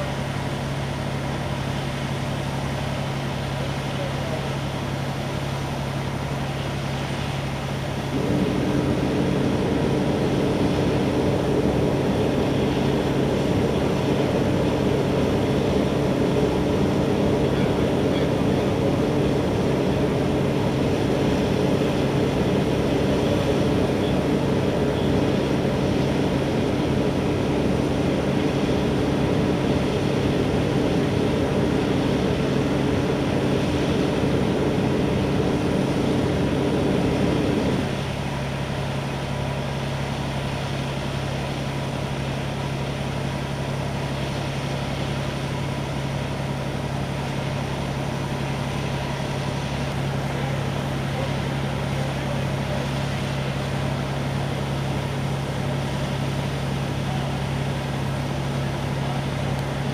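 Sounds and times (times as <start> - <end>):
fire engines running: 0.0 - 59.9
low hum: 8.1 - 38.3.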